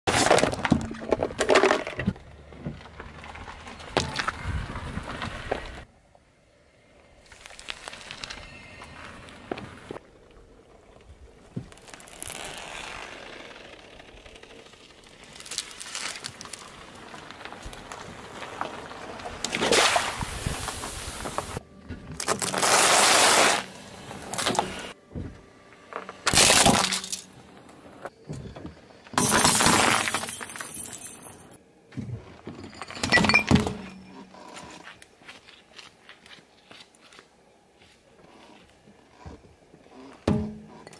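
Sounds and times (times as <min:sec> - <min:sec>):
chips crunching under tyre: 0:15.0 - 0:21.6, 0:26.0 - 0:27.8
tyre crushing objects: 0:26.0 - 0:27.2.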